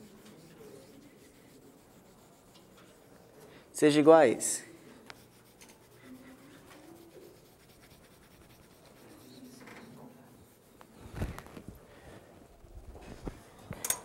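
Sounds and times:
chalk rubbing on chalkboard: 0:00.0 - 0:03.3, 0:04.6 - 0:11.0.

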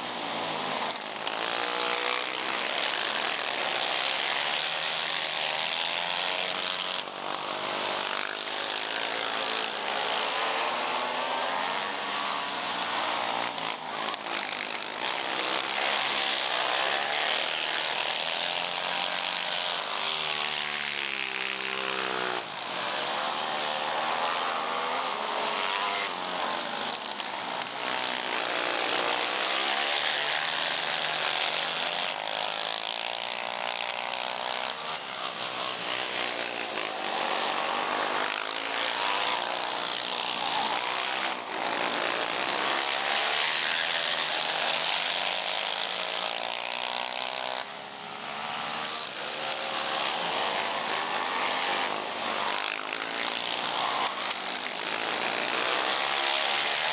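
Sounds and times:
racing atv engines at high revs: 0:00.0 - 0:56.9.

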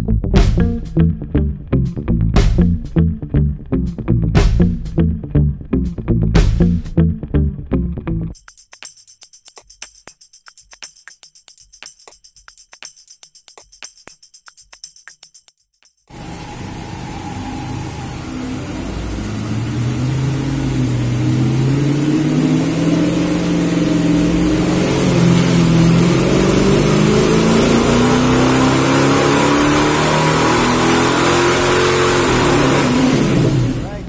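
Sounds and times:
car engine revving under load: 0:16.1 - 0:34.0.

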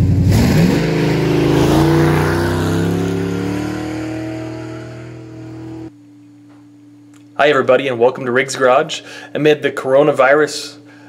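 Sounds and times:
pickup truck engine driving past: 0:00.0 - 0:05.9.

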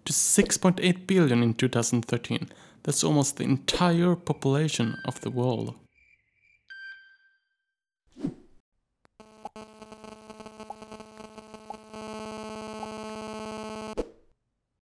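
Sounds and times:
steady electronic buzz: 0:09.2 - 0:14.0.

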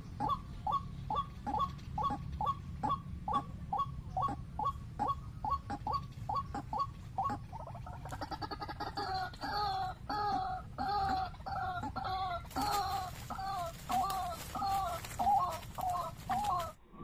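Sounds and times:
waterhen calling: 0:00.0 - 0:16.8
rustling and wing flapping: 0:12.4 - 0:16.9.

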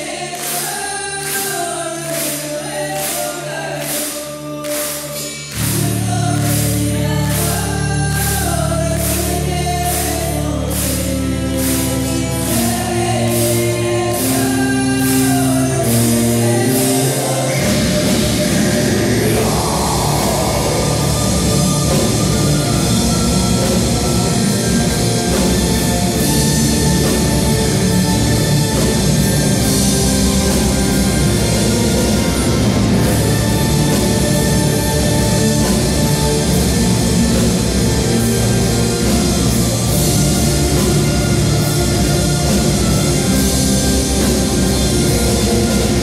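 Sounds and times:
voices singing: 0:00.0 - 0:24.7
held orchestral chords: 0:00.0 - 0:46.0
steady drum beat: 0:00.0 - 0:46.0
heavy full-band metal music: 0:04.6 - 0:46.0.

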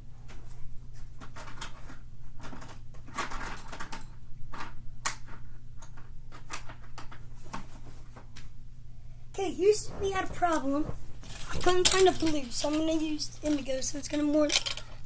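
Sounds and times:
scraping of supplies: 0:09.7 - 0:12.9
colouring supplies rattling: 0:10.0 - 0:15.0.

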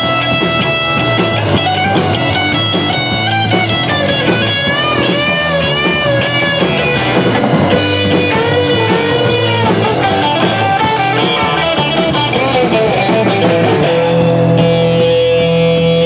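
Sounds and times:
drum kit: 0:00.0 - 0:16.0
electric guitar melody: 0:00.0 - 0:16.0.

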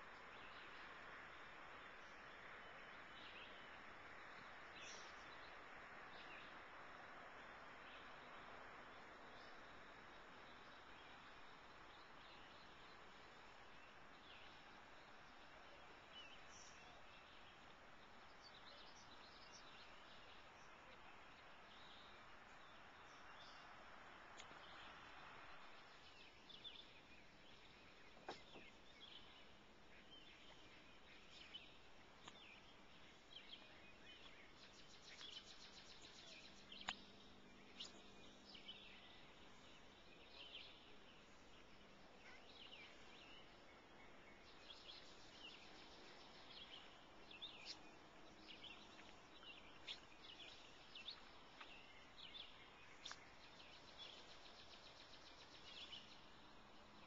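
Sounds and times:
faint bird chirps: 0:07.5 - 0:57.0
faint clicks: 0:24.3 - 0:24.8, 0:32.2 - 0:32.6, 0:34.2 - 0:37.2, 0:51.1 - 0:51.8, 0:53.0 - 0:53.5.

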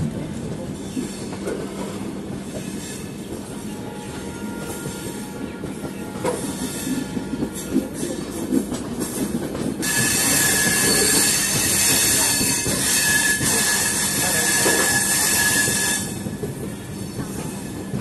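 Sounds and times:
train hiss with high squeal: 0:09.8 - 0:16.3, 0:17.0 - 0:18.0.

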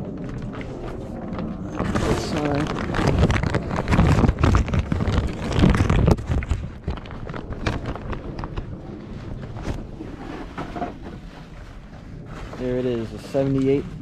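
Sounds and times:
fabric car cover rustling: 0:09.0 - 0:13.8.

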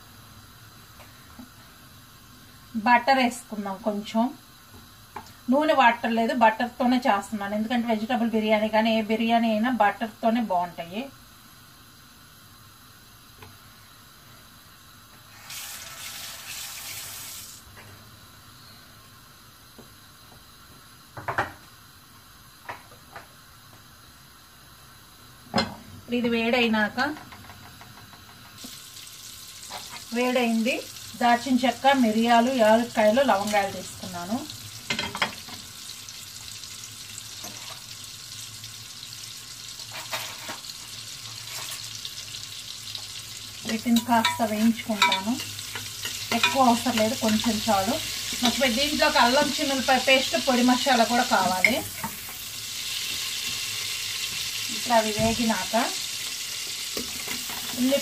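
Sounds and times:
spices sizzling in butter: 0:00.0 - 0:58.0
water running from a tap: 0:15.3 - 0:17.6, 0:28.3 - 0:58.0.

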